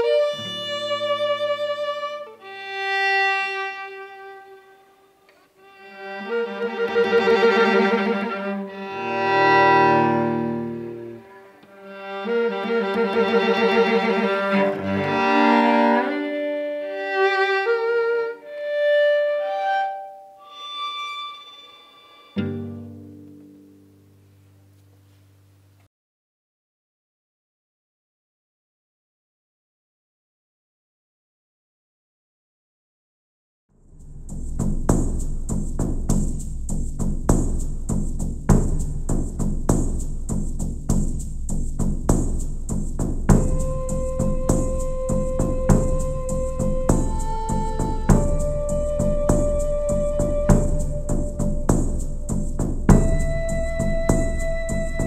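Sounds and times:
violin and cello duet: 0:00.0 - 0:22.9, 0:43.4 - 0:51.1
plucked string note: 0:21.3 - 0:24.8
ceremonial drum beat: 0:34.0 - 0:55.0.

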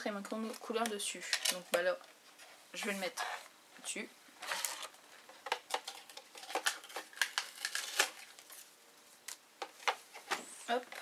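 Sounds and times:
pens and pencils clattering: 0:04.4 - 0:08.2.

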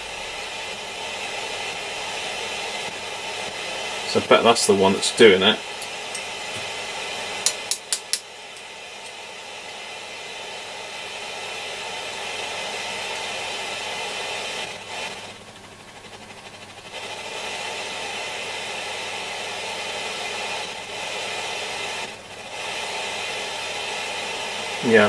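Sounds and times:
radio loudspeaker rushing hiss: 0:00.0 - 0:07.4, 0:17.0 - 0:25.0.

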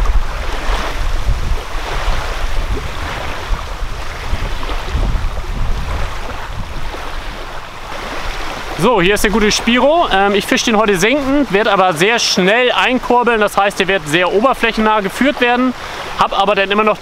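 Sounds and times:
wind buffeting microphone: 0:00.0 - 0:11.8
small waves on shore: 0:00.0 - 0:17.0.

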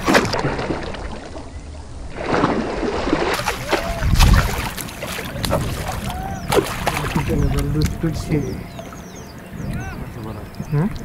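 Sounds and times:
water splashing: 0:00.0 - 0:11.0
fish thrashing in net: 0:03.2 - 0:07.3.

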